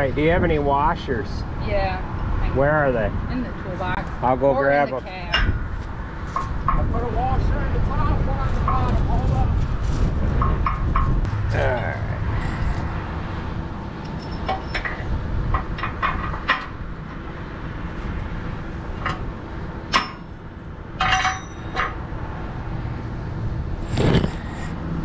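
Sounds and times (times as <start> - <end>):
low engine rumble: 0.0 - 25.0
metal washers and tools clinking: 14.0 - 17.2, 19.9 - 20.4, 21.0 - 22.0.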